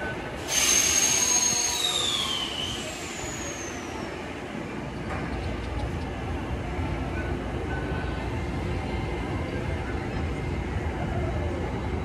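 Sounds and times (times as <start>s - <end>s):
loud hiss of released air: 0.4s - 4.0s.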